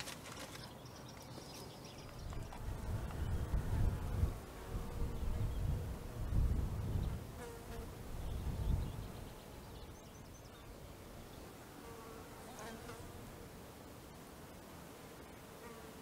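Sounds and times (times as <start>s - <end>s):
wind rumble on microphone: 2.0s - 10.0s.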